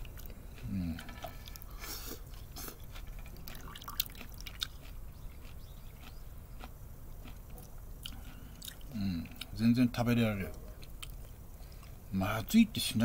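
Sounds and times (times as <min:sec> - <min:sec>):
person chewing: 0:00.0 - 0:09.6, 0:10.5 - 0:12.0
person sipping soup: 0:00.1 - 0:05.6.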